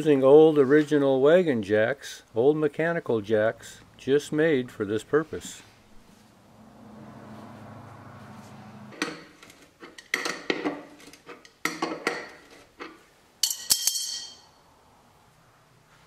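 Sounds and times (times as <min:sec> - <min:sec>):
metallic clanks of hand jack: 0:09.0 - 0:14.5.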